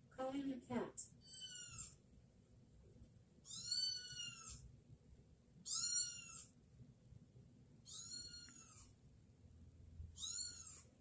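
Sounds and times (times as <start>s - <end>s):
kitten meowing: 1.2s - 2.0s, 3.4s - 4.7s, 5.6s - 6.6s, 7.8s - 8.9s, 10.1s - 10.9s.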